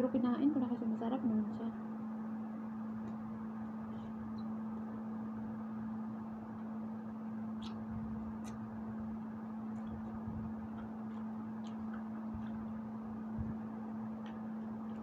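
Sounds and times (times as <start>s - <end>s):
steady low hum: 0.0s - 15.0s
chewing fruit clicks: 7.4s - 15.0s.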